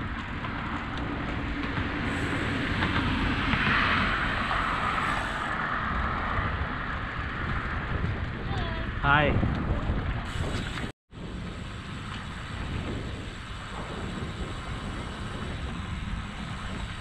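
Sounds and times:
car passing: 0.0s - 9.1s
wind rushing on microphone: 0.0s - 17.0s.

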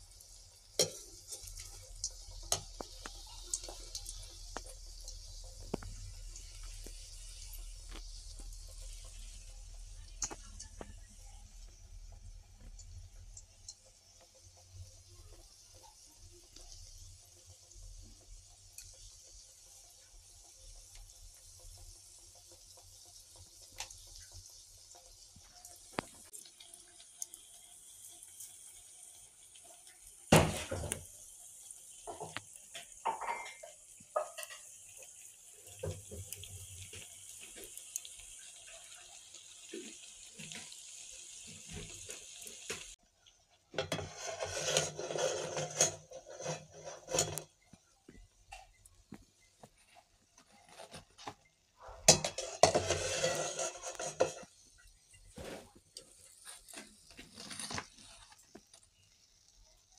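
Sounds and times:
oil sizzling: 0.0s - 59.9s
slotted spoon scraping pan: 43.8s - 47.5s, 52.0s - 54.5s.

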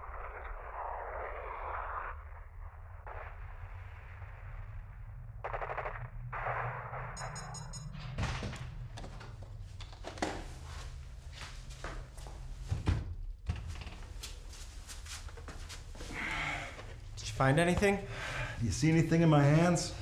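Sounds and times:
rapid gunfire: 5.4s - 6.7s.

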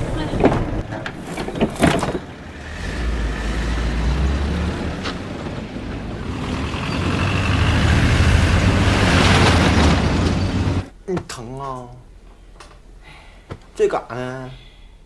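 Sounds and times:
minibus engine rumbling: 0.0s - 11.0s.

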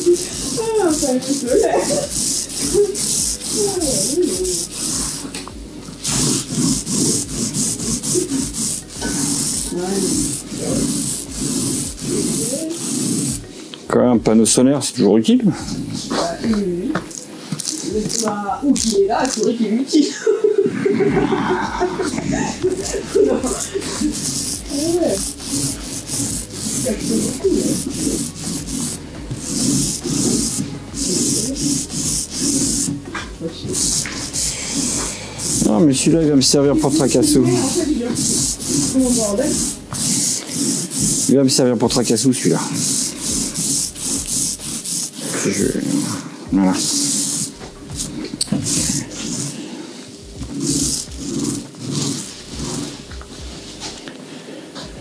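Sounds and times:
sandpaper rasping: 0.0s - 13.5s, 17.5s - 19.5s, 21.0s - 49.6s, 50.4s - 53.9s
hissy rubbing scraping noise: 0.0s - 13.6s, 15.5s - 16.6s, 20.6s - 55.0s.

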